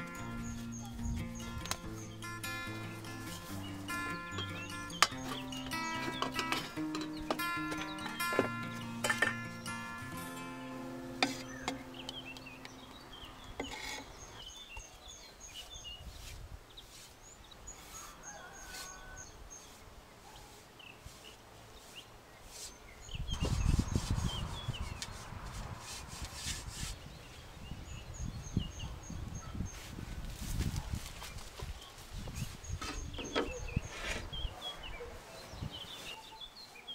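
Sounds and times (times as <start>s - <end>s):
background music: 0.0s - 13.5s
small birds chirping: 0.0s - 36.9s
wooden knocks: 4.2s - 9.6s
low rubbing on wooden table: 23.4s - 27.0s, 32.9s - 34.4s.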